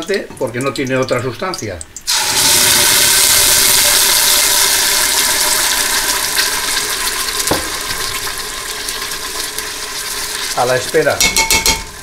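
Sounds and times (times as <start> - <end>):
sauce sizzling in hot oil: 0.4 - 12.0
knock: 7.5 - 8.0.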